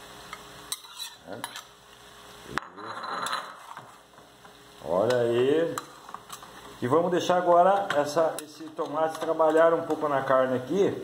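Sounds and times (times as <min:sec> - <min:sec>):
metal spoon scraping pot: 0:00.7 - 0:01.7.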